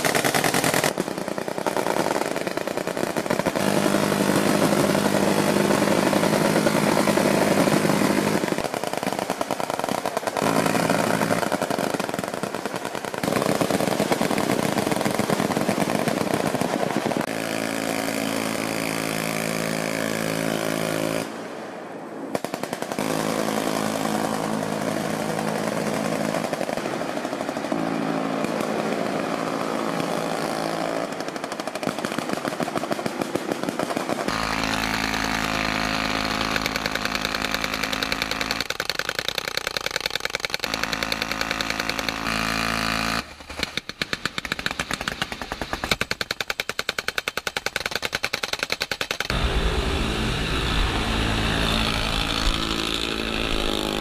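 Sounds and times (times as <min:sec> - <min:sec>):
machine gun rapid shots: 0:00.0 - 0:21.3, 0:22.3 - 0:49.4
minigun firing continuous buzz: 0:00.0 - 0:54.0
boat engines rumbling: 0:49.3 - 0:54.0.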